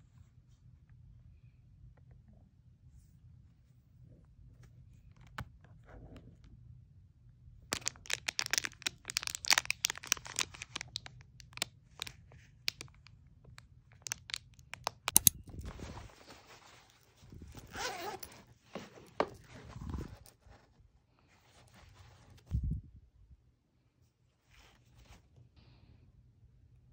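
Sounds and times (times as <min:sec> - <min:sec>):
cellophane bag crinkling: 0:07.7 - 0:13.1, 0:13.9 - 0:18.3
fabric pouch rustling: 0:07.8 - 0:11.0, 0:14.0 - 0:20.7.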